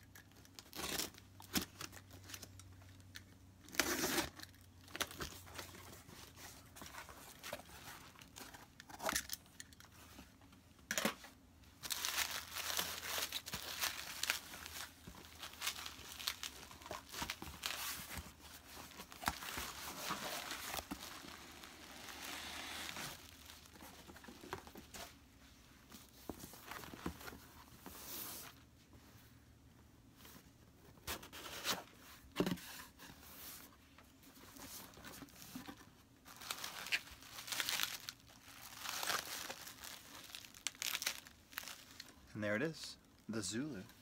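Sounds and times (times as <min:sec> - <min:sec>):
packing tape tearing: 0:00.2 - 0:02.5, 0:03.6 - 0:05.4, 0:36.3 - 0:42.0
bubble wrap crinkling: 0:11.8 - 0:25.0, 0:34.5 - 0:42.3.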